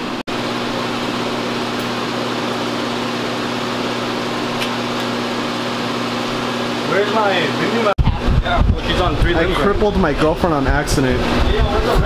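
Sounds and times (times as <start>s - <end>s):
steady mechanical hum: 0.0s - 12.0s.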